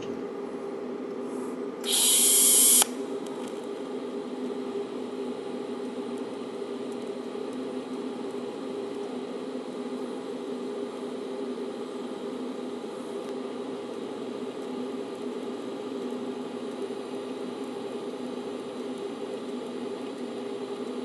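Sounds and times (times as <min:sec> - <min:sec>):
welding arc hiss: 0:01.8 - 0:02.9
welding arc humming: 0:01.8 - 0:02.9.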